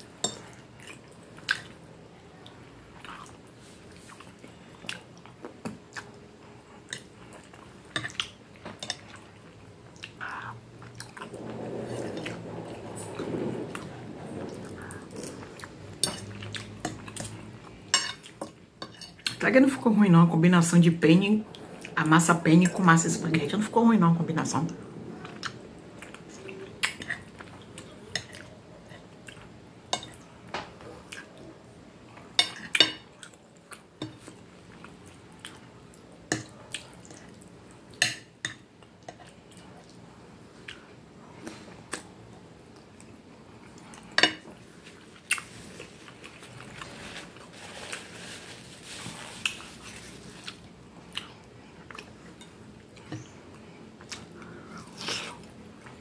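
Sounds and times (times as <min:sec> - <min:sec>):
chewing and mouth sounds: 0:45.0 - 0:46.9, 0:50.4 - 0:56.0.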